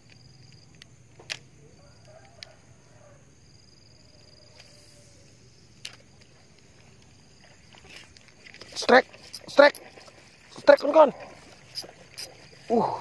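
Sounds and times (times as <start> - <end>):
fishing reel clicks: 7.0 - 12.5.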